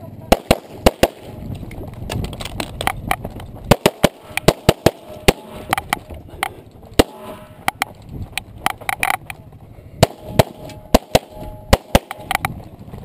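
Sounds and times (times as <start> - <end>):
pistol shots: 0.3 - 1.4, 3.7 - 6.0, 7.0 - 7.7, 10.0 - 12.4.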